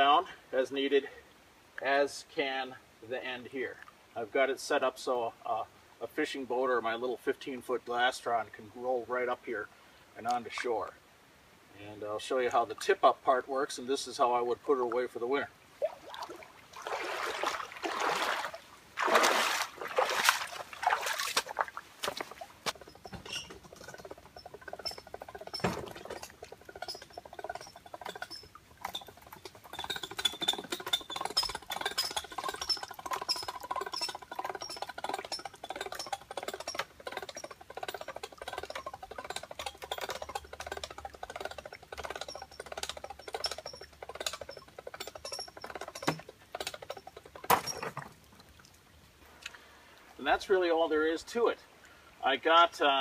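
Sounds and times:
high hinge squeak: 0:22.7 - 0:40.4, 0:41.6 - 0:47.9
quick hoist clicks: 0:23.0 - 0:47.6.

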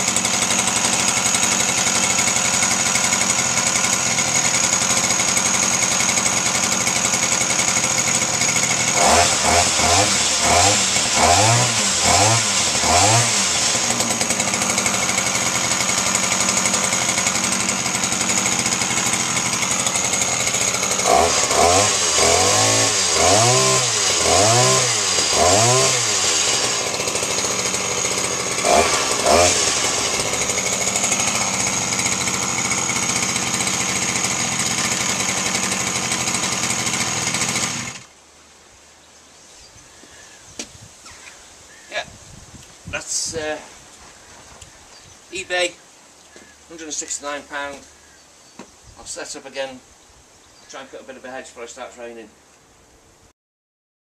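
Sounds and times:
two-stroke engine revving: 0:00.0 - 0:38.1.

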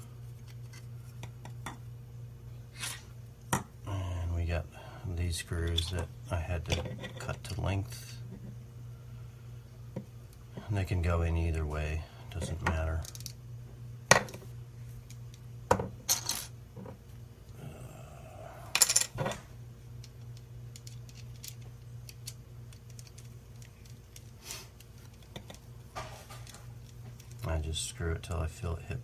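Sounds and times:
small metal parts clinking: 0:13.0 - 0:13.4, 0:16.1 - 0:16.5, 0:18.8 - 0:19.3, 0:20.7 - 0:24.3.

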